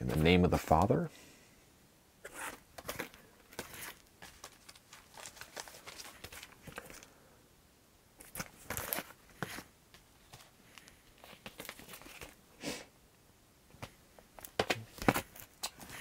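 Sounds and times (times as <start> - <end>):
cardboard sleeves sliding and rustling: 2.3 - 7.0.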